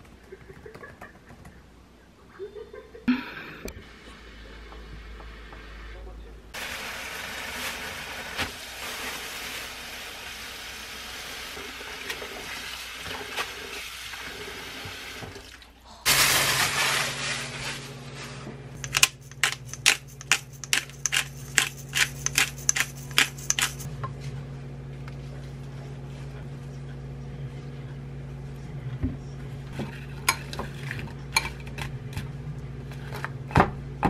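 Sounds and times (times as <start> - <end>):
pepper grinder grinding: 18.8 - 23.9.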